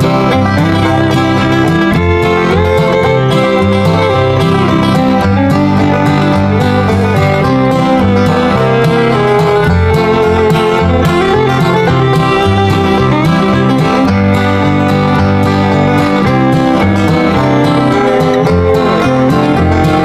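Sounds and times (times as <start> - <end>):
upbeat country music: 0.0 - 20.0.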